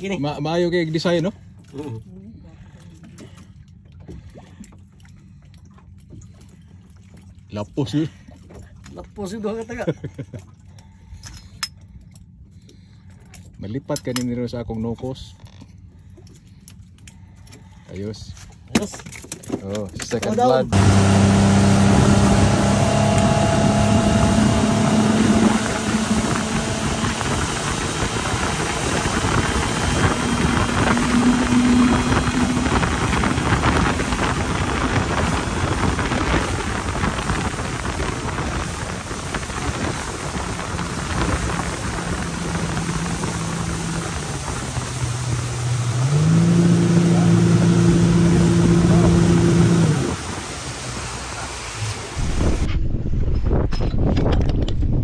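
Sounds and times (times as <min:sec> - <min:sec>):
boat engine running: 0:00.0 - 0:14.2, 0:14.8 - 0:52.7
rushing noise: 0:20.8 - 0:53.2.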